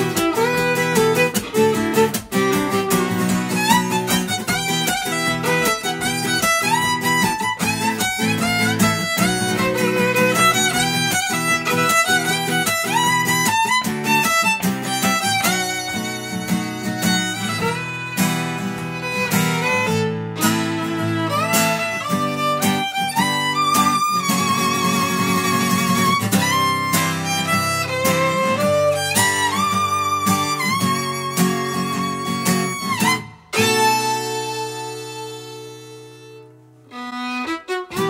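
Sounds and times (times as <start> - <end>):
strummed acoustic guitar: 0.0 - 38.0
violin melody: 0.0 - 38.0.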